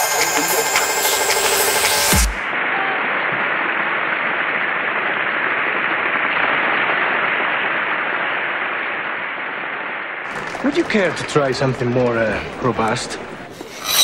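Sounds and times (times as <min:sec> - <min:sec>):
audience applauding: 0:00.0 - 0:03.6, 0:10.2 - 0:13.7.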